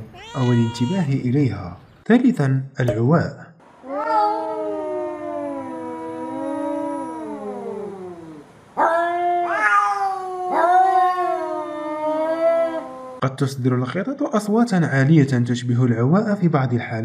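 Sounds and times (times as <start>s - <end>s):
cat yowling: 0.0s - 1.2s, 3.8s - 13.2s.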